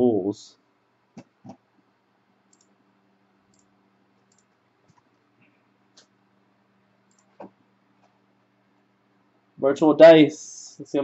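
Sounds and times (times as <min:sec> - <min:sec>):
faint low hum: 0:00.0 - 0:11.0
computer mouse clicks: 0:02.5 - 0:02.8, 0:03.5 - 0:05.2, 0:07.0 - 0:08.2.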